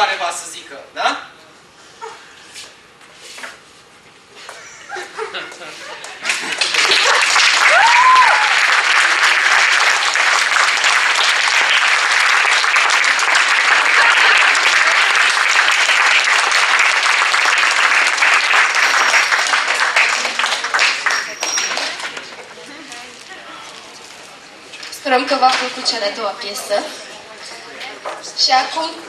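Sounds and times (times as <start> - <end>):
audience applauding: 5.9 - 22.7
person whooping: 7.6 - 8.6.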